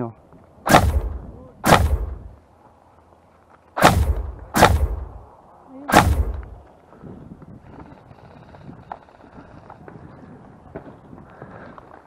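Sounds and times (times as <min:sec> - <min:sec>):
airsoft rifle shots: 0:00.6 - 0:02.4, 0:03.8 - 0:05.2, 0:05.9 - 0:06.6.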